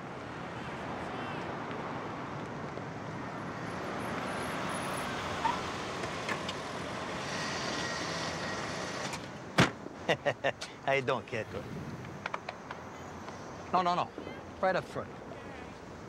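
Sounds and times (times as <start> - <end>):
car engine and tyre noise: 0.0 - 16.0.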